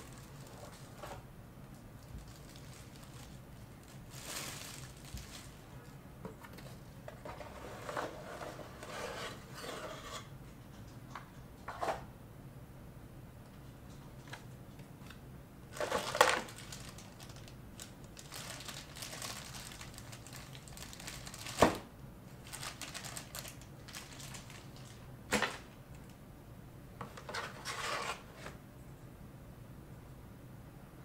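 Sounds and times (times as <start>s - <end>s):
packaging rustling and crinkling: 0.0s - 1.2s, 2.0s - 5.8s, 15.7s - 25.7s.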